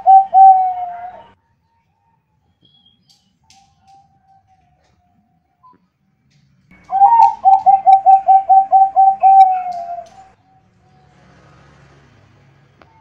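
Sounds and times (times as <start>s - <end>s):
dove cooing: 0.0s - 1.4s, 6.7s - 10.4s.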